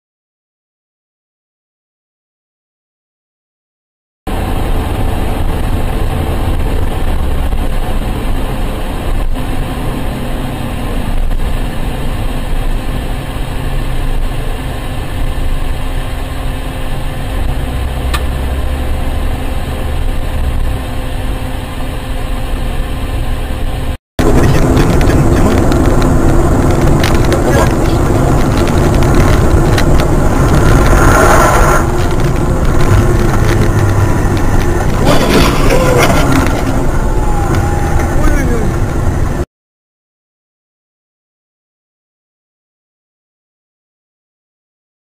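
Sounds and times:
car engine drone: 0:04.3 - 0:39.5
loud vehicle: 0:04.3 - 0:39.5
tyre noise: 0:24.2 - 0:39.4.

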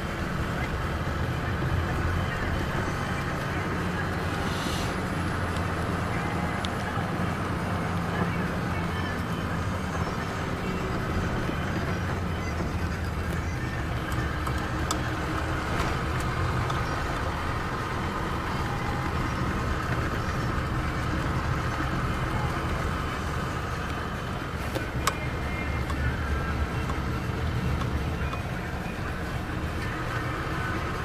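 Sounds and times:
car engine and tyre noise: 0:00.0 - 0:31.0.

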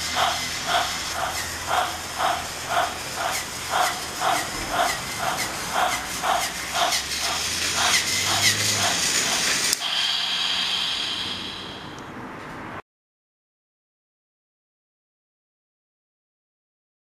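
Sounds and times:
toy train chuffing: 0:00.0 - 0:12.0
faint motor hum: 0:00.0 - 0:12.4
steady hiss with high tone: 0:08.4 - 0:12.1.

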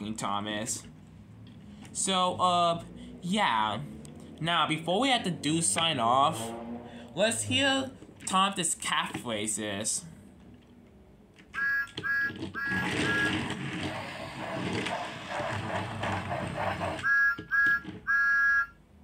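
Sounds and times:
electronic whistle toots: 0:11.5 - 0:13.5, 0:17.0 - 0:18.9
toy train sounds: 0:11.5 - 0:18.8.

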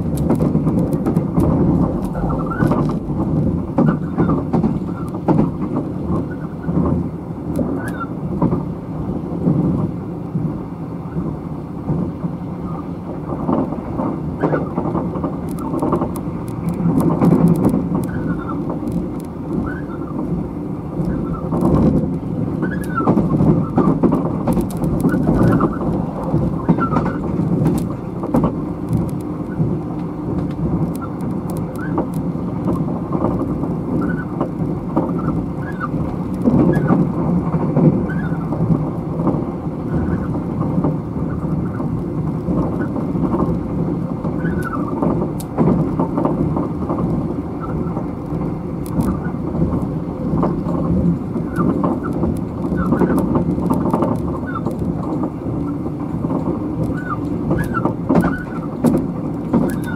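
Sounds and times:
train wheels rumbling on rail: 0:00.0 - 0:59.9
light rattling clicks: 0:14.8 - 0:19.9, 0:21.0 - 0:37.1.

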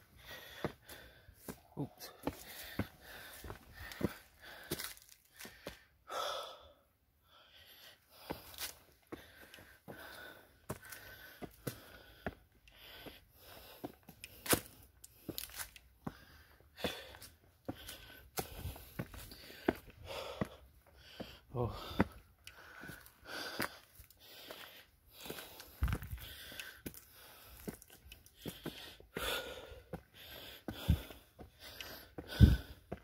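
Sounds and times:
footsteps on stone steps: 0:00.0 - 0:05.8, 0:07.8 - 0:33.0
person breathing heavily: 0:00.0 - 0:33.0.

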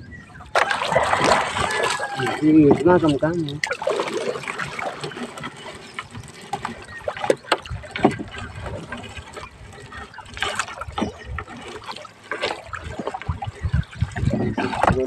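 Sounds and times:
water splashing and dripping: 0:00.4 - 0:15.0
wet net rustling: 0:00.5 - 0:13.9.

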